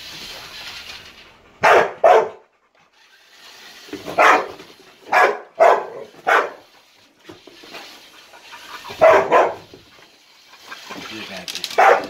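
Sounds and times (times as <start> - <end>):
dog barking: 1.6 - 2.5, 4.1 - 6.7, 8.9 - 9.7, 11.8 - 12.0.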